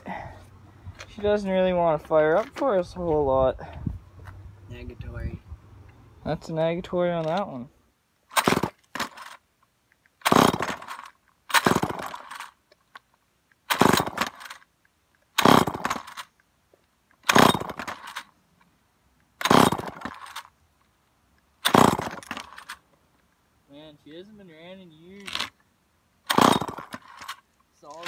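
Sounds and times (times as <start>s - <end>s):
chainsaw starter cord pulls: 8.3s - 9.4s, 10.2s - 12.6s, 13.7s - 14.7s, 15.3s - 16.4s, 17.2s - 18.3s, 19.4s - 20.5s, 21.6s - 22.8s, 25.2s - 25.6s, 26.3s - 28.0s
engine turning over: 10.2s - 12.5s, 13.7s - 14.6s, 15.4s - 16.2s, 17.2s - 18.2s, 19.4s - 20.4s, 21.6s - 22.7s, 26.3s - 27.3s.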